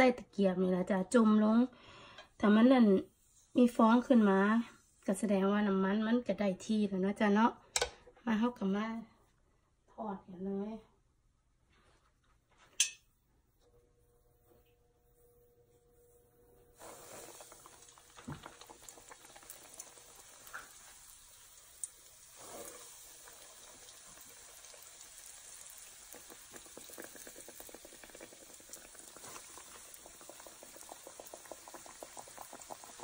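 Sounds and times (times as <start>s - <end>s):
dough sizzling in hot oil: 16.7s - 33.0s.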